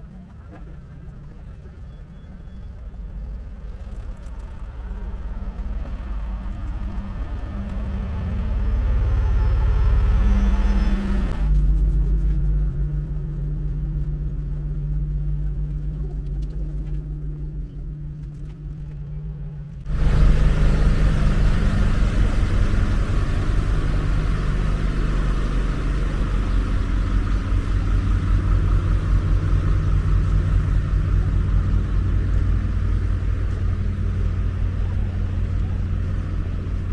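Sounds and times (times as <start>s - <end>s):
diesel engine idling: 4.4s - 11.8s, 19.9s - 36.9s.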